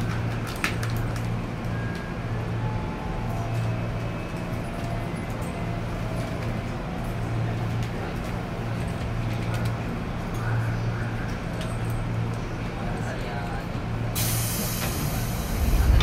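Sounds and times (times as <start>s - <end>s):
train wheels rumbling on rail: 0.0s - 16.0s
low pulsing motor hum: 15.4s - 16.0s.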